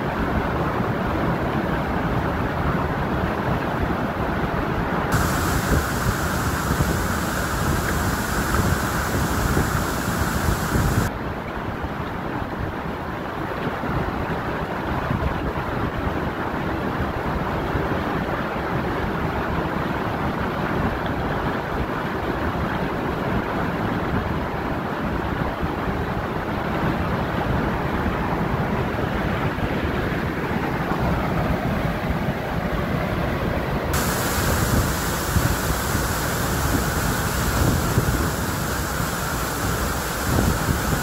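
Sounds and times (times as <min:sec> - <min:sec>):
stream rushing over rocks: 0:05.1 - 0:11.1, 0:34.0 - 0:41.0.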